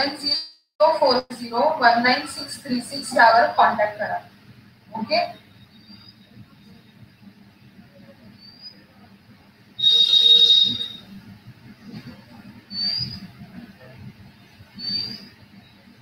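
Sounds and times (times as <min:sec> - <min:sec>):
shrill whistle-like tone: 0:05.3 - 0:06.4, 0:09.8 - 0:11.2, 0:12.7 - 0:13.3, 0:14.8 - 0:15.4
short rising high squeaks: 0:05.6 - 0:06.8, 0:09.8 - 0:11.2.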